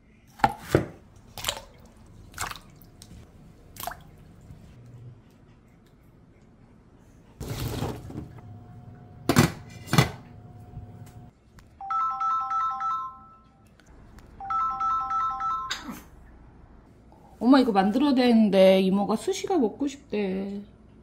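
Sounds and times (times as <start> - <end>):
phone ringtone melody: 11.8 - 13.6, 14.4 - 15.7.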